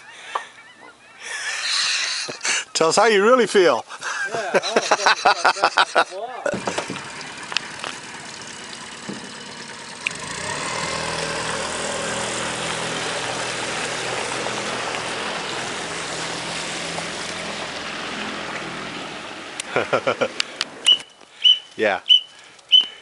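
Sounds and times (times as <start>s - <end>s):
outboard motor running: 5.6s - 19.0s.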